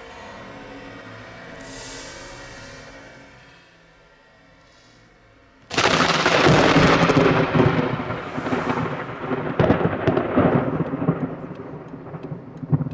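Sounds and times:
rolling thunder rumble: 5.7s - 12.9s
thunder crack: 5.7s - 12.9s.

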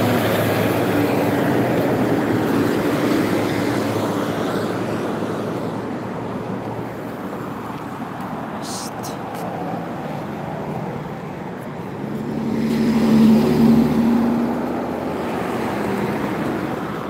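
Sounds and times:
car driving past: 12.0s - 16.8s.

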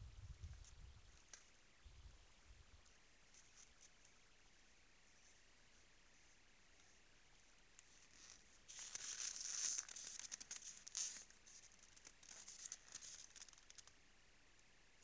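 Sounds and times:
crunching and crackling in snow: 7.8s - 14.0s.

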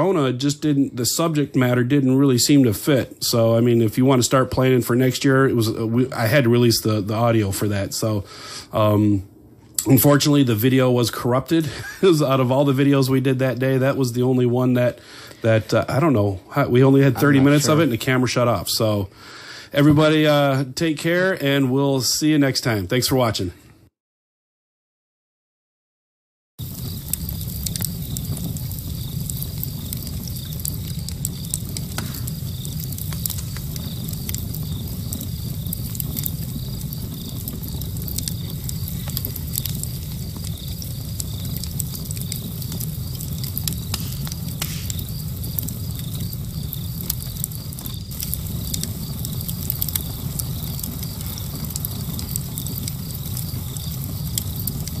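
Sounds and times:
crackling clicks and pops: 9.6s - 10.0s, 26.6s - 55.0s
low rumble: 26.6s - 55.0s.

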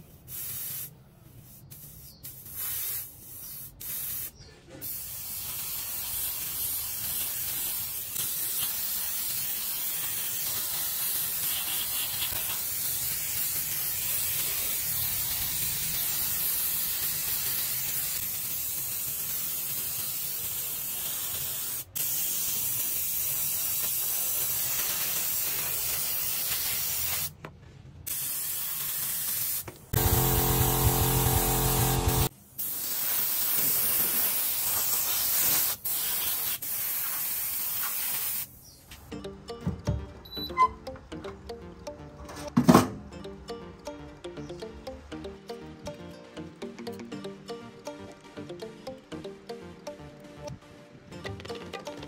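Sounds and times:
airbrush hissing: 0.2s - 27.3s, 28.1s - 38.5s.

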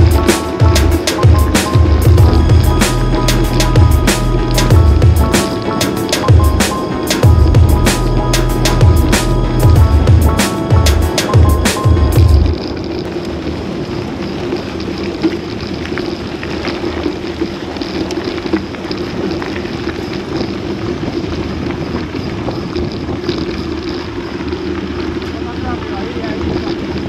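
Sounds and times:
small ticks and rattles: 0.0s - 7.3s, 9.8s - 27.0s
bike tyres rumbling on gravel: 0.0s - 27.0s
wind rushing on microphone: 9.7s - 27.0s.

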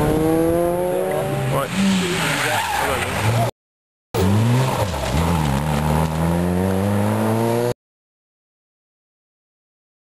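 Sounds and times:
rally car engine revving: 0.0s - 3.5s, 4.2s - 7.8s.

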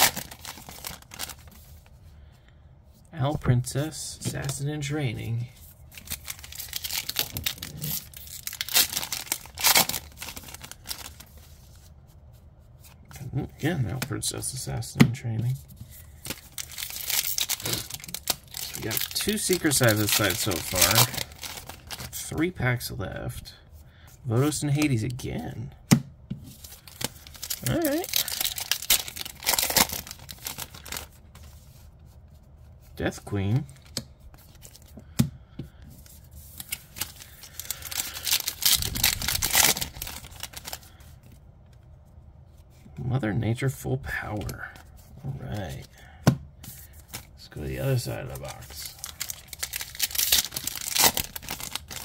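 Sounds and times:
foil wrapper tearing and crinkling: 0.0s - 1.5s, 6.0s - 11.4s, 16.2s - 22.2s, 26.8s - 31.1s, 36.6s - 40.9s, 48.4s - 52.0s.

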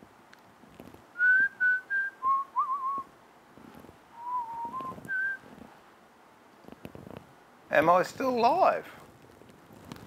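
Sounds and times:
man whistling a tune: 1.2s - 3.1s, 4.2s - 5.5s.

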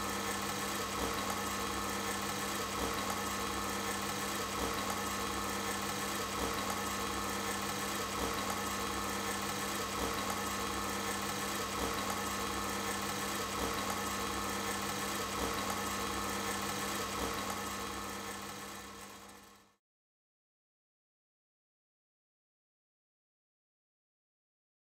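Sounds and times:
arc lamp electrical hum: 0.0s - 19.8s.

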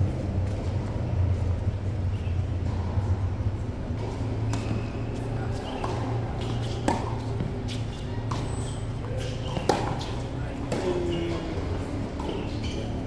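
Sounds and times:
tennis ball struck by rackets: 4.0s - 4.8s, 5.6s - 13.0s.

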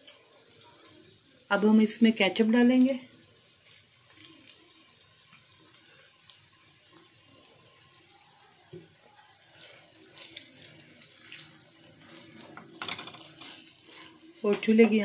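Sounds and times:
spatula scraping wok: 8.8s - 15.0s.

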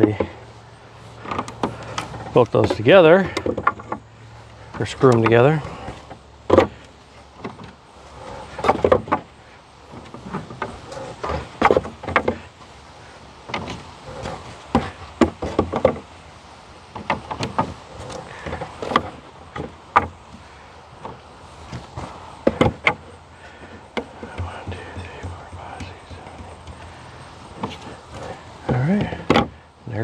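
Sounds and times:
plastic frames knocking on wood: 5.1s - 6.8s, 9.9s - 12.4s, 13.5s - 16.1s, 21.0s - 29.6s.

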